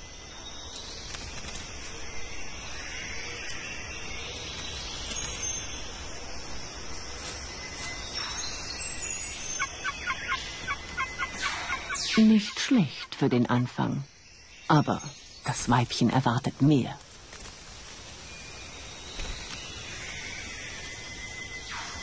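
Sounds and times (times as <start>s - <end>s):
high hiss of insects: 0.0s - 22.0s
wings swishing: 17.0s - 22.0s.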